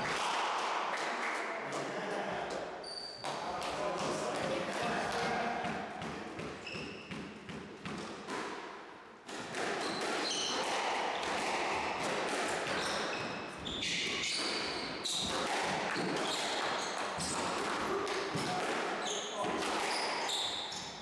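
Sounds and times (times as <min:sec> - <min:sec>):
shoes squeaking on floor: 0:02.8 - 0:03.5, 0:06.2 - 0:08.4, 0:09.8 - 0:11.2, 0:12.7 - 0:21.0
squash ball bouncing: 0:04.0 - 0:08.7, 0:09.3 - 0:21.0
racket striking ball: 0:14.4 - 0:20.2.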